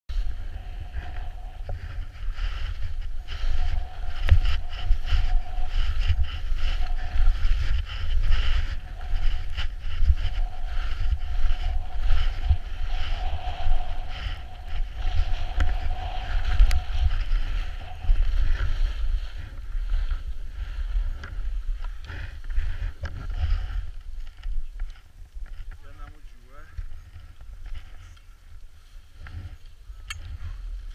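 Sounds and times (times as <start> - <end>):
skis sliding on snow: 0.1 - 23.9
wind buffeting microphone: 0.1 - 30.9.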